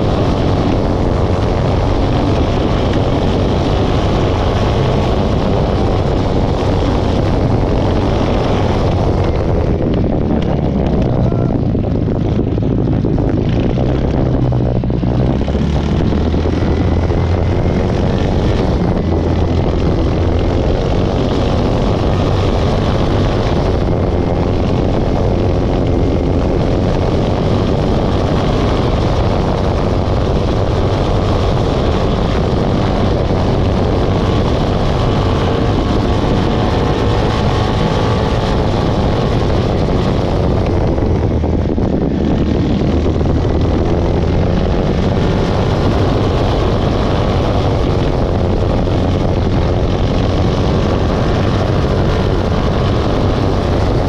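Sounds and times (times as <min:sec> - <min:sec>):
tractor engine droning: 0:00.0 - 0:54.0.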